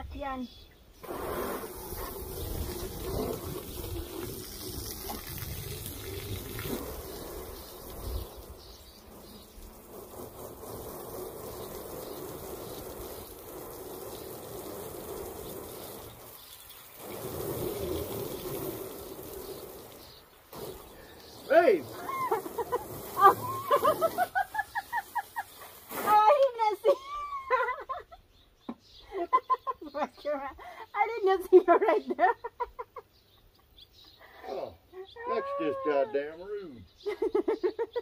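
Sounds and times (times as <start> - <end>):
hose nozzle spraying water: 1.0 - 26.9.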